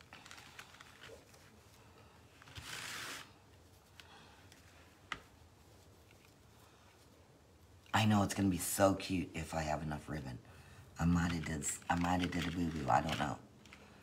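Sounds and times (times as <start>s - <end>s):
fabric ribbon rustling: 0.0s - 7.8s.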